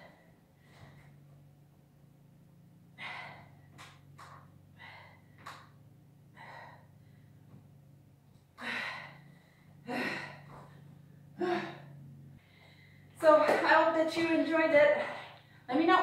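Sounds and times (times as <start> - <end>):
steady low hum: 0.0 - 16.0
woman gasping for breath: 8.6 - 10.8.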